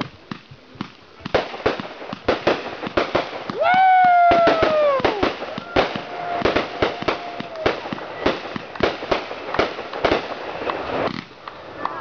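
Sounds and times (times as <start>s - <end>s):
fireworks popping and crackling: 0.0s - 12.0s
firework whistle: 3.4s - 11.1s.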